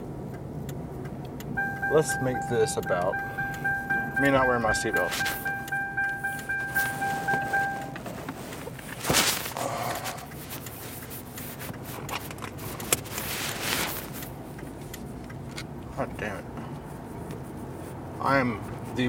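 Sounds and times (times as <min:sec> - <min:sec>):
road noise in car cabin: 0:00.0 - 0:19.0
seatbelt warning chime beeping: 0:01.5 - 0:08.6
rustling: 0:04.8 - 0:15.6.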